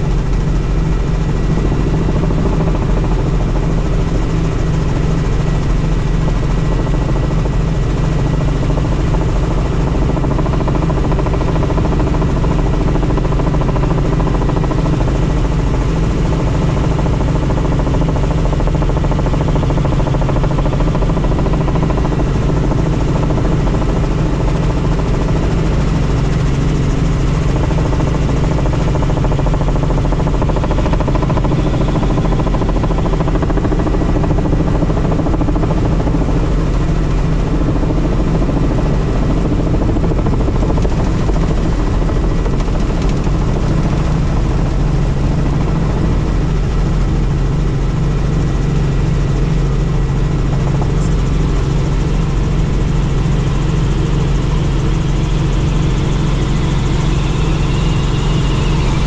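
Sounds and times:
helicopter rotor and engine drone: 0.0s - 59.0s
thin steady whine: 24.1s - 59.0s.

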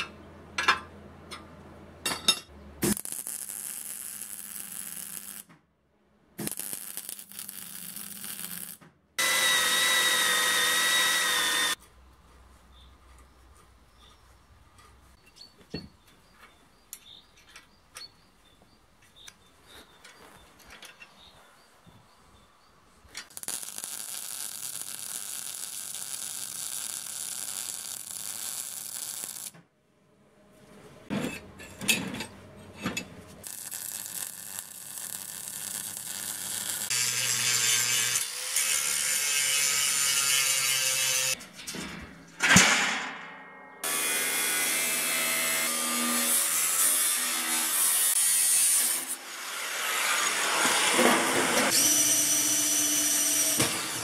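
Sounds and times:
welding crackle: 2.8s - 5.5s, 6.4s - 11.8s, 23.3s - 29.6s, 33.4s - 41.4s
angle grinder cutting sheet metal: 6.5s - 11.8s, 33.5s - 41.4s, 43.8s - 54.0s.

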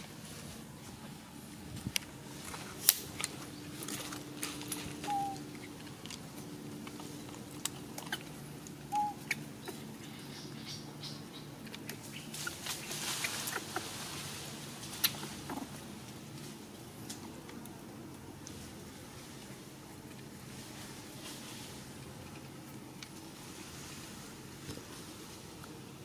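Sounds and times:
low steady hum: 0.0s - 26.0s
rustling in dry leaves: 0.0s - 26.0s
high chirps: 5.0s - 5.4s.

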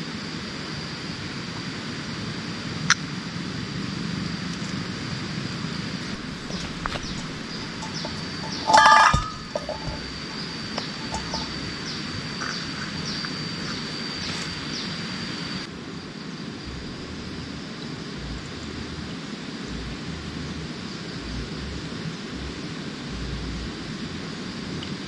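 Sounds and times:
steady hiss: 5.6s - 24.8s
steady high-pitched call: 6.1s - 15.7s
wind rumble on microphone: 16.6s - 25.0s.

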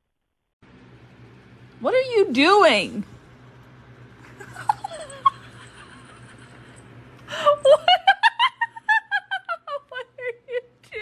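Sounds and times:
person giggling: 4.4s - 11.0s.

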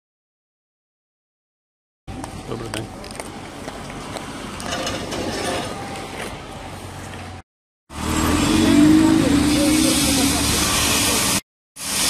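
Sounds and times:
motor engines running: 2.1s - 11.4s.

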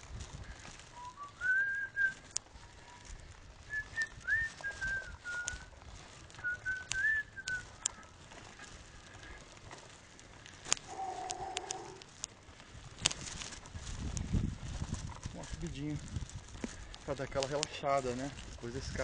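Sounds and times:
man whistling a tune: 1.0s - 2.3s, 3.7s - 5.7s, 6.4s - 7.6s
sharp clicks: 10.5s - 12.4s.

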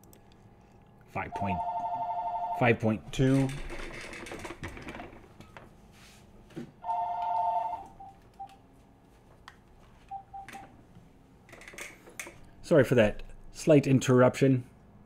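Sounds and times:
telephone ringing: 1.3s - 3.4s, 6.8s - 8.5s, 10.1s - 10.7s.

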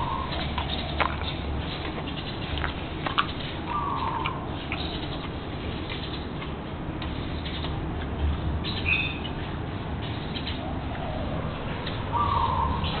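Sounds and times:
crunching and rustling: 0.0s - 8.6s
dog chewing stalks: 0.0s - 9.6s.

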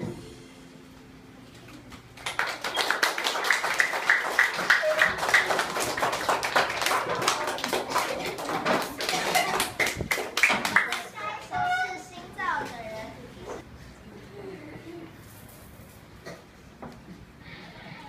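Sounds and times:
children clapping: 1.9s - 11.6s
children calling out: 4.6s - 12.4s.

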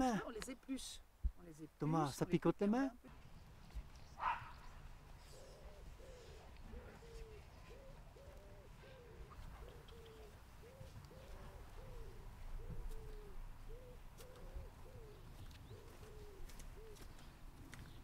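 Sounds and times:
dove cooing: 5.2s - 17.4s.

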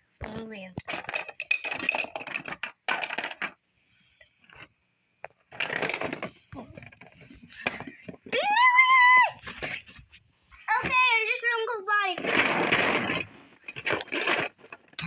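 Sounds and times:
plastic toy pieces clattering: 0.7s - 3.6s, 5.5s - 8.4s, 12.2s - 15.0s.

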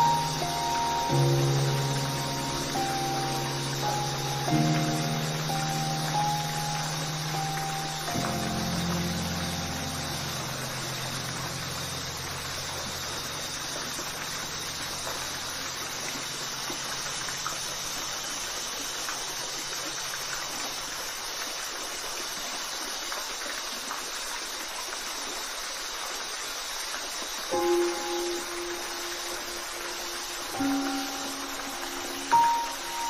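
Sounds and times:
low held music notes: 0.0s - 16.2s
waterfall rushing: 0.0s - 33.0s.

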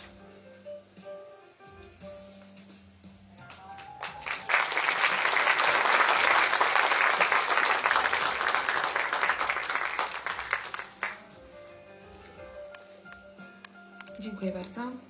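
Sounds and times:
audience applause: 3.5s - 11.2s.

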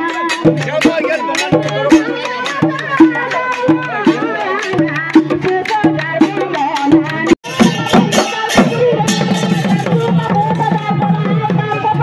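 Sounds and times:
men singing: 0.0s - 5.6s.

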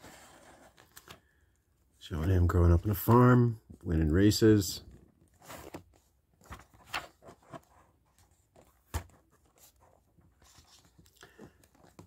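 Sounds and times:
paper pages rustling: 4.9s - 12.0s.

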